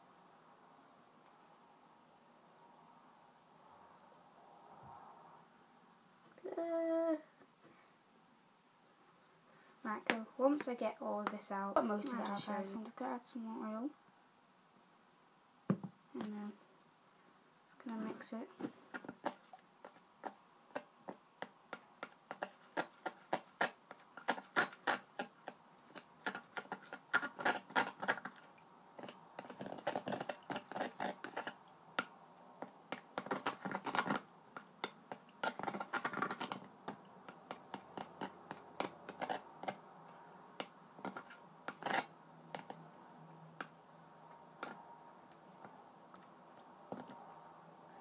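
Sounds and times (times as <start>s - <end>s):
stick clicking and scraping in cup: 17.9s - 42.8s, 44.6s - 44.8s.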